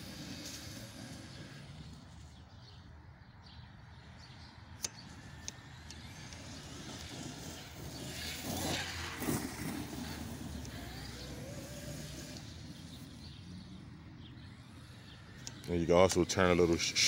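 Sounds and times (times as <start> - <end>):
rc truck electric motor whining: 0.0 - 2.7, 4.9 - 17.0
sharp clicks: 4.8 - 7.1, 15.3 - 16.8.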